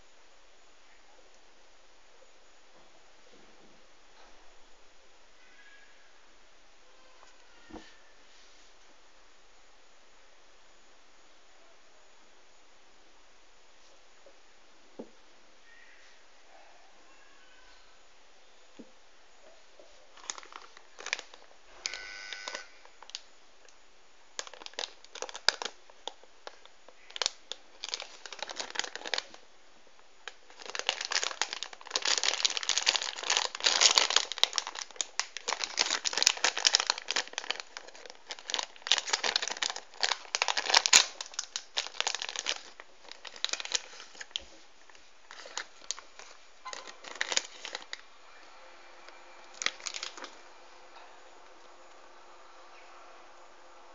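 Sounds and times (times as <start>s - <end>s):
foil packet crinkling: 20.1s - 23.2s, 24.4s - 29.4s, 30.2s - 48.1s, 49.4s - 50.4s.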